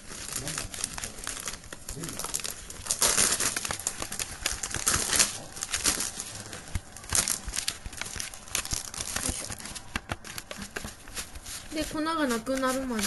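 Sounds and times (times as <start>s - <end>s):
plastic fork scraping powder mix: 8.9s - 13.0s.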